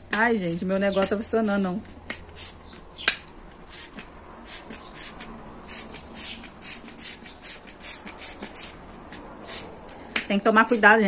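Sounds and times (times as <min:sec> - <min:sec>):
spray bottle spritzing: 0:01.4 - 0:02.8, 0:03.5 - 0:09.7.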